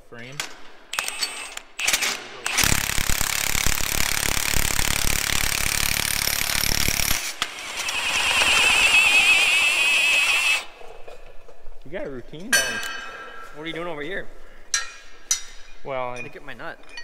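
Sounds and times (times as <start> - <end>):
impact wrench hammering: 0.9 - 10.6.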